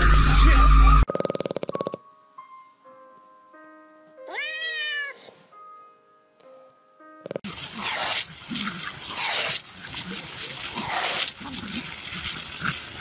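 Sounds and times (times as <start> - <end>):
loud noisy sound: 0.0 - 1.1
meow-like call: 4.3 - 5.2
soft tinkling music: 4.7 - 7.2.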